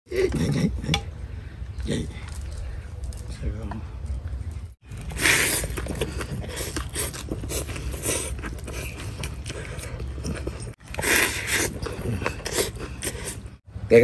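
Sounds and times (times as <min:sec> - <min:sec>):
man slurping noodles: 0:05.1 - 0:13.6.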